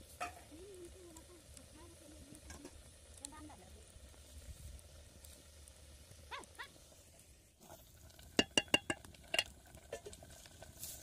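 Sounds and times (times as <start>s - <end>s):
metal ladle clinking on pot: 8.4s - 9.5s.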